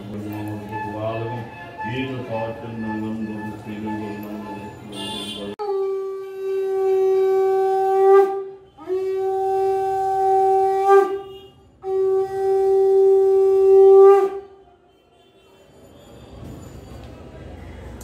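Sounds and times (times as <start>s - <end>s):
conch shell blasts: 0.5s - 14.6s.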